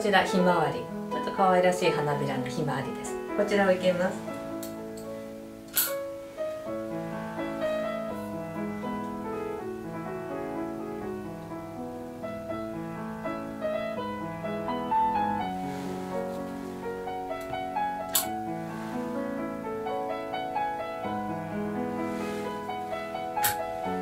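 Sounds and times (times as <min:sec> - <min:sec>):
solo piano music: 0:00.0 - 0:24.0
sharp click: 0:05.7 - 0:06.0.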